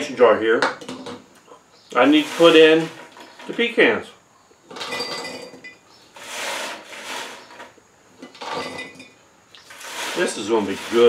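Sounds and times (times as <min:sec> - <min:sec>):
nuts rattling into glass jar: 0:04.7 - 0:05.8, 0:08.2 - 0:11.0.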